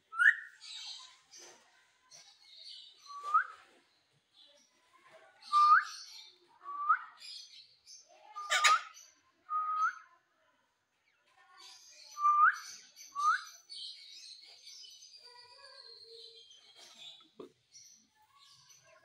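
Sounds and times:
parakeet harsh squawk: 8.4 - 8.9
parakeet scratchy chatter: 8.4 - 9.0.

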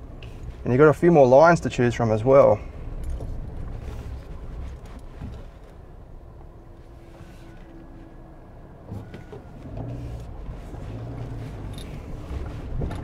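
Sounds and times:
car engine at low revs: 0.0 - 13.0
vehicle knocks and clicks: 8.8 - 10.5, 11.2 - 13.0.

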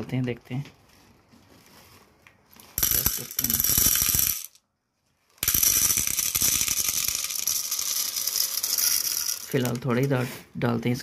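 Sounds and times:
popcorn kernels rattling onto metal: 2.7 - 4.6, 5.4 - 10.0.

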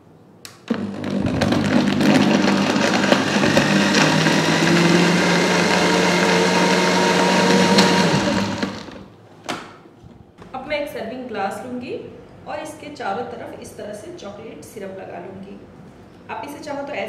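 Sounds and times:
blender motor running: 0.7 - 9.1.

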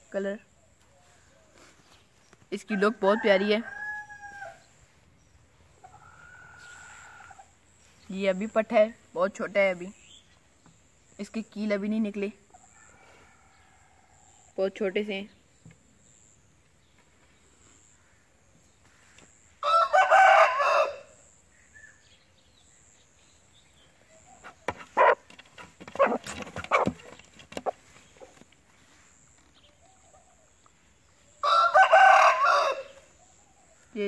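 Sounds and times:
rooster crowing: 2.7 - 4.6, 19.6 - 21.2, 31.4 - 33.0.

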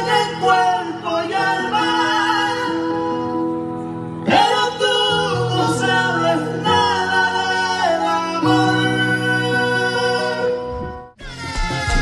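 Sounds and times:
people singing: 0.0 - 3.5, 4.2 - 12.0
bass: 2.6 - 12.0
accordion: 5.4 - 12.0.

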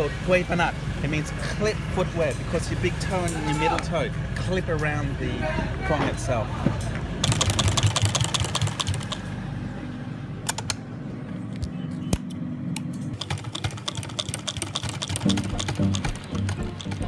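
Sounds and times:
sewing machine needle clicks: 7.2 - 9.2, 13.2 - 17.0
sewing machine motor hum: 7.2 - 9.4, 13.2 - 17.0.

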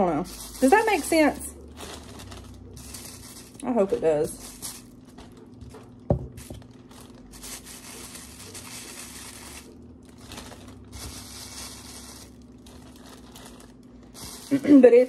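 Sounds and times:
potatoes scraped by peeler: 0.0 - 1.4
faint steady hum: 0.0 - 15.0
plastic bag crinkling: 0.0 - 15.0.

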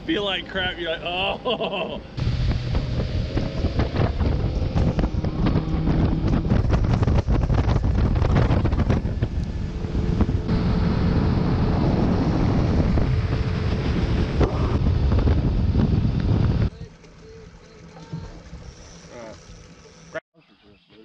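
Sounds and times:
outboard motor drone: 0.0 - 20.2
wind buffeting microphone: 2.2 - 18.8
water rushing off hull: 2.2 - 20.2.

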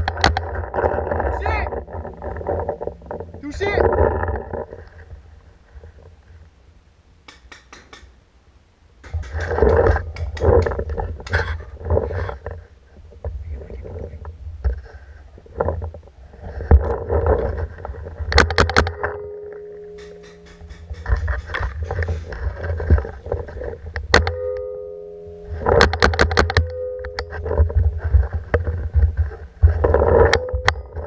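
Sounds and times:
rustling: 0.0 - 6.6, 9.0 - 31.0
sharp clicks: 7.2 - 8.2.

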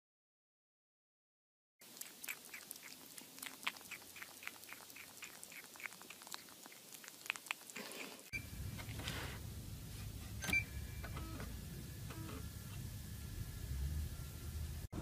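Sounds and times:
kitten chewing plastic bowl: 1.8 - 9.2.

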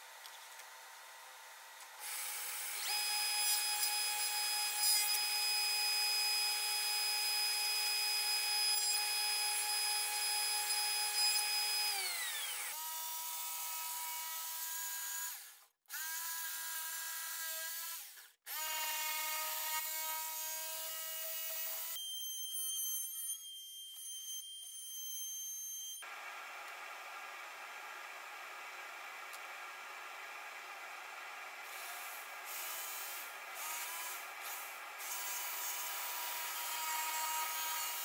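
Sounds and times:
jigsaw cutting a board: 2.0 - 22.0, 31.6 - 38.0
table saw cutting wood: 2.0 - 28.9, 30.9 - 38.0.

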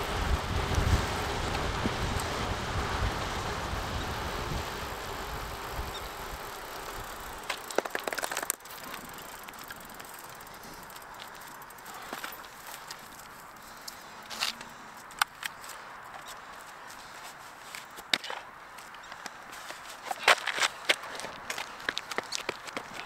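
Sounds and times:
bicycle freewheel clicking: 0.0 - 14.0
wind and road noise: 0.0 - 23.0.

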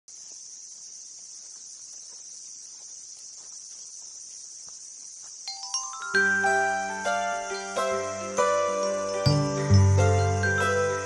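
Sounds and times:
insects buzzing: 0.1 - 11.0
chime-like musical note: 5.5 - 11.0.

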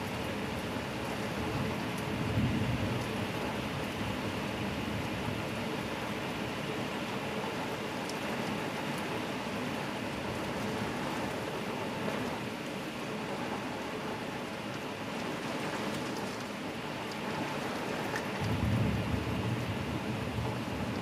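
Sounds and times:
heavy rain hissing: 0.0 - 21.0
low rumble of thunder: 1.2 - 6.1, 18.3 - 21.0.

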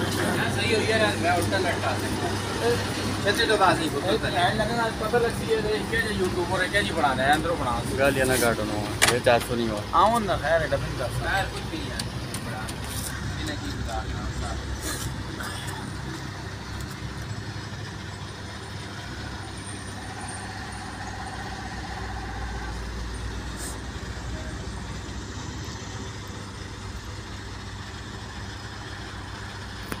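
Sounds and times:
truck engine droning: 0.0 - 30.0.

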